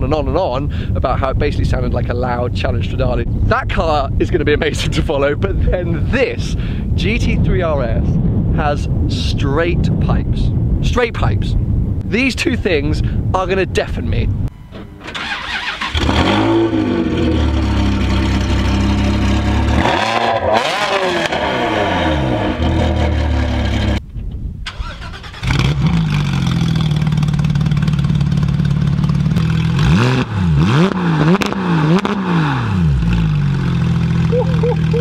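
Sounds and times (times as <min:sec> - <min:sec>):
second sports car engine revving: 0:15.6 - 0:24.0, 0:25.4 - 0:35.0
sports car engine idling and revving: 0:15.9 - 0:24.0, 0:25.4 - 0:35.0.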